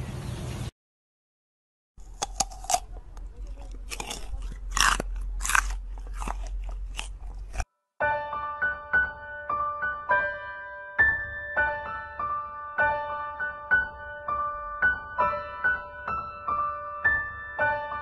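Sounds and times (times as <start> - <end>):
deer chewing food: 2.0 - 7.6.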